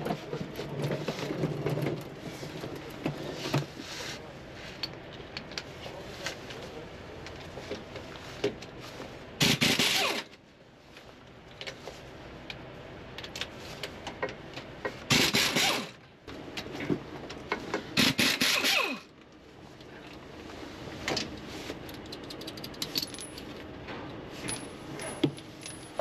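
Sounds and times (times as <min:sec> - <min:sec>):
light metallic clicks and rattles: 0:21.1 - 0:26.0.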